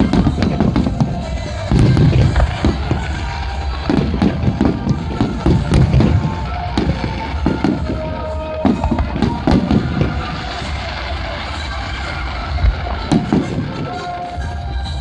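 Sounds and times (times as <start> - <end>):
fireworks booms and crackles: 0.0 - 15.0.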